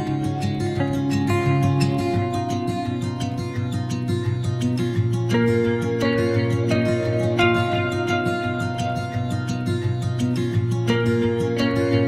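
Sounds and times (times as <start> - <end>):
plucked acoustic guitar music: 0.0 - 12.0.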